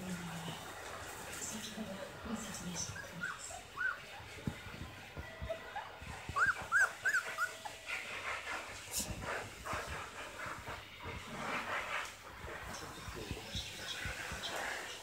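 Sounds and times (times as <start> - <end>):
rustling on a blanket: 0.0 - 15.0
puppy whimpering: 2.9 - 4.1, 5.4 - 7.8.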